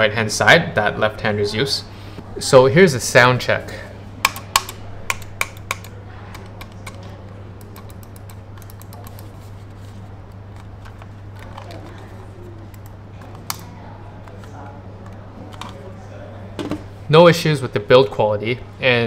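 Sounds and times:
mouse buttons clicking: 4.2s - 7.0s.

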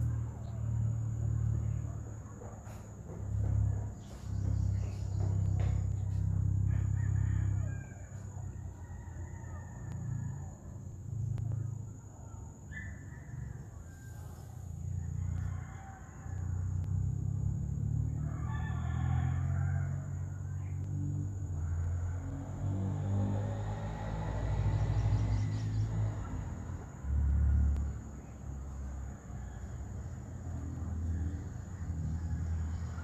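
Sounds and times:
rooster crowing: 3.4s - 10.9s, 13.6s - 20.8s, 27.2s - 33.0s.

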